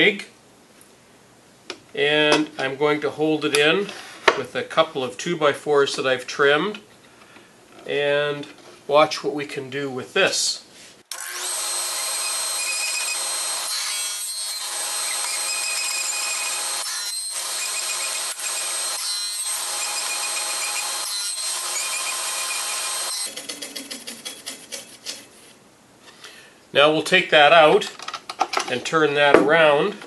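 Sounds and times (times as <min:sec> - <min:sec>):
table saw cutting wood: 0:11.1 - 0:23.4.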